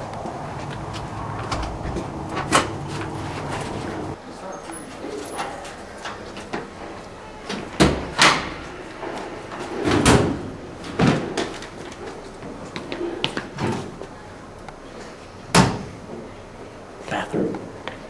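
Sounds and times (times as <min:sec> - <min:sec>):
doors banging: 0:01.2 - 0:04.2, 0:09.6 - 0:11.4
metal lockers banging shut: 0:09.7 - 0:11.3.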